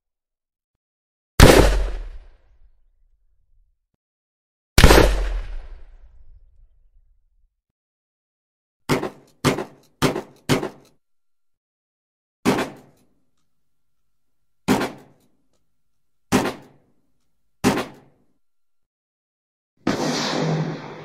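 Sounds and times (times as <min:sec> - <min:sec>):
shotgun shots: 0:01.4 - 0:02.4, 0:04.8 - 0:06.2, 0:16.3 - 0:16.7, 0:17.6 - 0:18.0.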